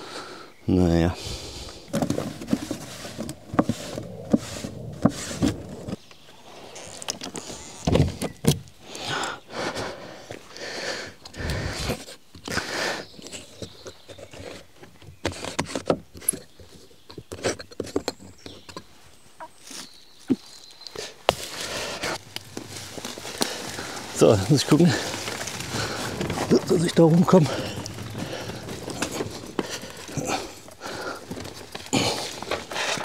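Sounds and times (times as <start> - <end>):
knocks and scrapes: 1.8 - 6.0, 13.2 - 20.4, 21.3 - 33.0
shuffling footsteps: 18.9 - 33.0.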